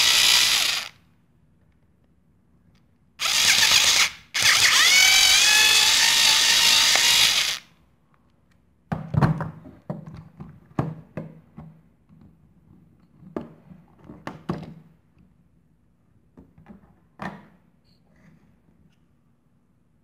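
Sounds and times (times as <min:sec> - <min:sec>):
power drill whining: 0:00.0 - 0:01.0, 0:03.2 - 0:07.7.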